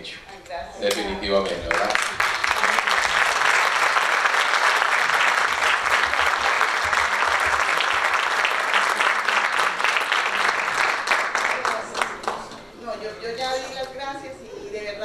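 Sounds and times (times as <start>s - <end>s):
audience applause: 1.7s - 12.6s.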